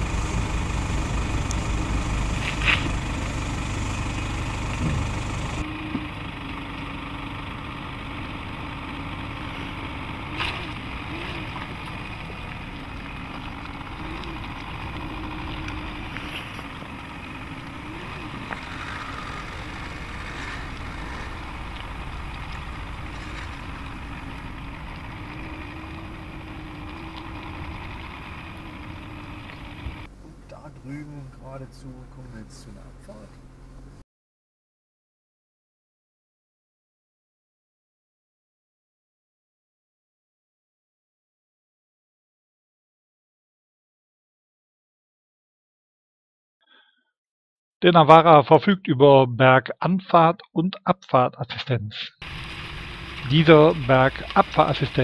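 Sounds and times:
diesel engine idling: 0:00.0 - 0:34.0, 0:52.2 - 0:55.0.

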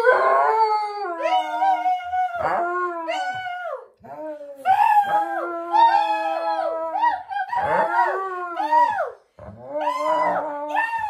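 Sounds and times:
dog howling: 0:04.6 - 0:11.0.

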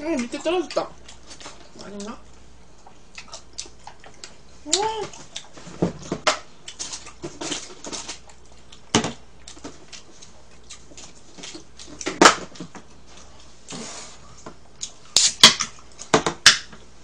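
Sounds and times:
chewing and smacking: 0:00.2 - 0:16.7.

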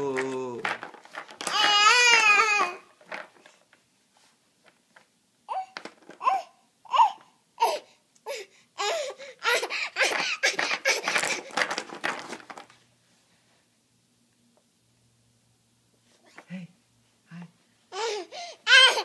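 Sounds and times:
baby laughing: 0:05.5 - 0:11.4, 0:17.9 - 0:19.0.

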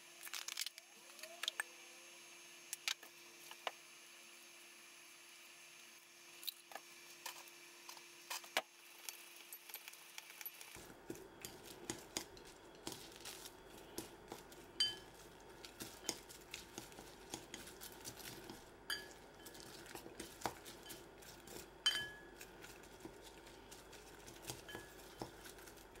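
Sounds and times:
chopsticks tapping a bowl: 0:11.0 - 0:26.0.

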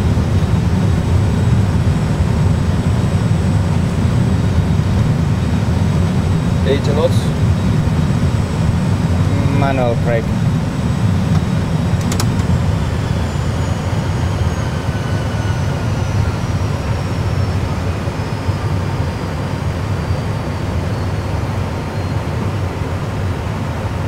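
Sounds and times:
turbine whine falling in pitch: 0:00.0 - 0:23.4
jet engine rumble: 0:00.0 - 0:24.0
click: 0:11.3 - 0:12.5.

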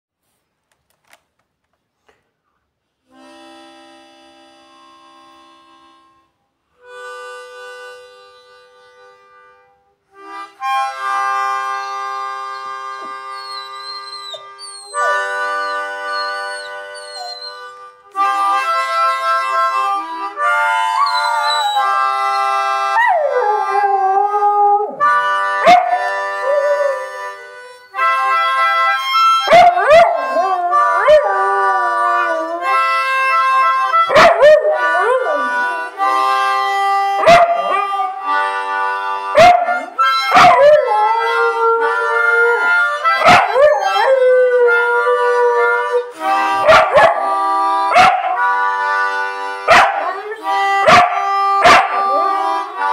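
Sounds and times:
harmonica playing chords: 0:03.0 - 0:52.9
dog howling: 0:13.4 - 0:17.6, 0:21.0 - 0:21.9, 0:29.5 - 0:32.7, 0:37.2 - 0:38.3, 0:39.4 - 0:46.0.

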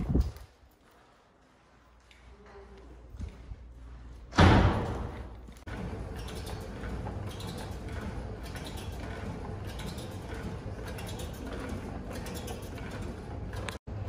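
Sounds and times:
elliptical trainer whirring: 0:03.0 - 0:14.0.

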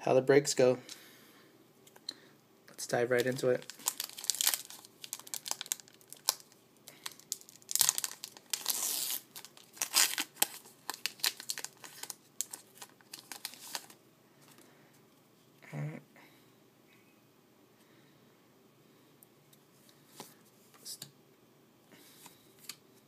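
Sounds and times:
foil wrapper tearing and crinkling: 0:03.2 - 0:14.0.

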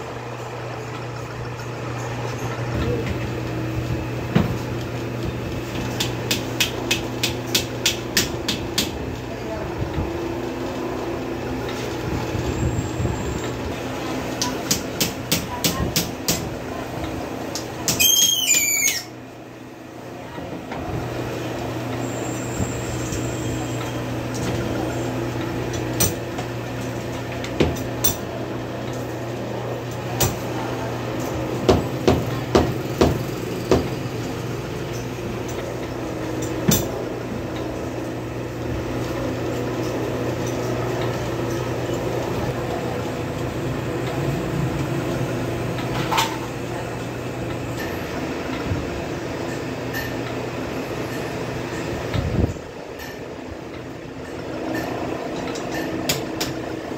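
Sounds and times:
high wavering squeal: 0:18.0 - 0:19.2
low machine hum: 0:19.1 - 0:56.9.

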